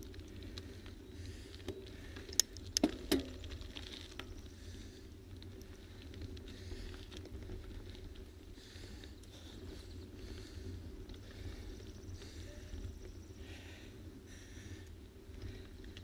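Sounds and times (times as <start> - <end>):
low rumble of movement and wind: 0.0 - 16.0.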